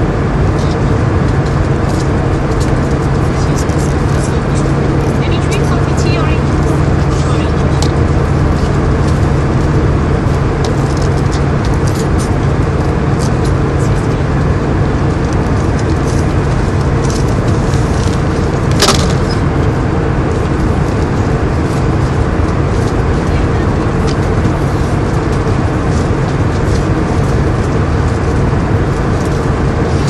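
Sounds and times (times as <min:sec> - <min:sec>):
airliner cabin noise: 0:00.0 - 0:30.0
low hum: 0:00.0 - 0:30.0
sharp click: 0:18.7 - 0:19.5.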